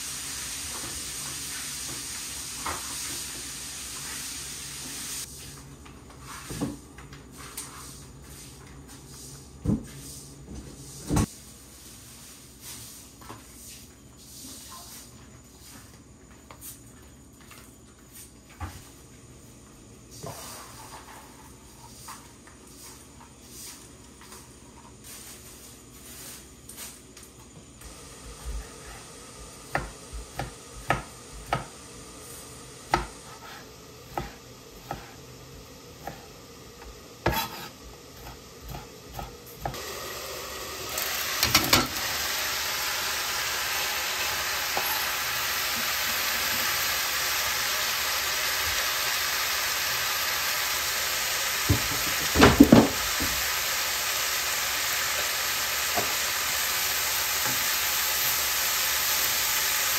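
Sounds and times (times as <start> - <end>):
frying sizzle: 0.0 - 10.2, 27.8 - 59.9.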